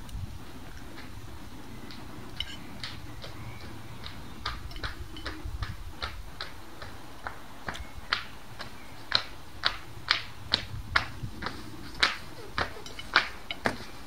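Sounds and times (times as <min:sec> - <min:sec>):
cutlery clinking on plate: 0:12.7 - 0:13.8.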